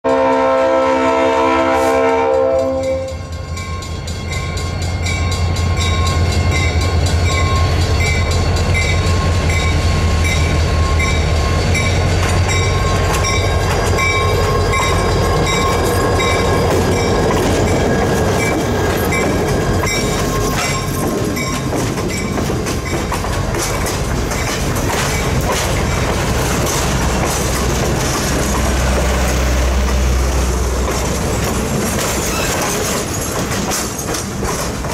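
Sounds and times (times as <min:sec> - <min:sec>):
locomotive horn: 0:00.0 - 0:03.3
locomotive engine rumbling: 0:00.1 - 0:34.9
crossing bell ringing: 0:02.1 - 0:34.0
train wheels clicking over rail joints: 0:02.6 - 0:34.9.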